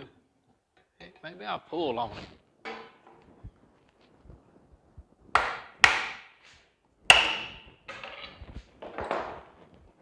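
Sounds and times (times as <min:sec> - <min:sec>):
metal scraping and rattling: 0:07.9 - 0:09.3.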